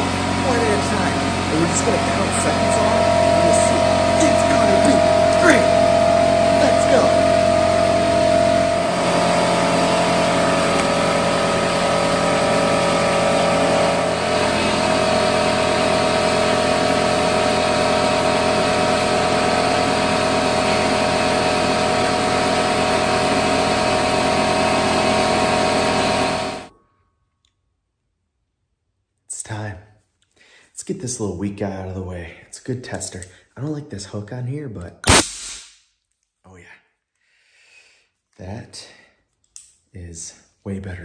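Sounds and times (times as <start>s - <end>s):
air compressor running: 0.0s - 26.7s, 35.0s - 35.6s.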